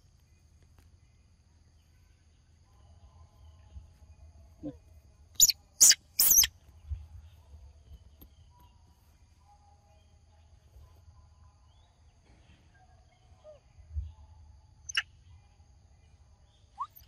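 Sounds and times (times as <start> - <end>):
monkey high-pitched squeals: 5.4 - 6.5, 16.8 - 17.0.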